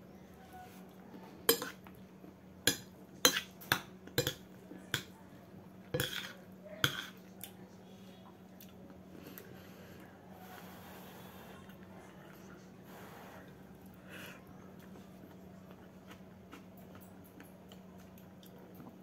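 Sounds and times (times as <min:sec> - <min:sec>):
spoon clinking against bowl: 0:01.5 - 0:01.8, 0:02.7 - 0:04.4.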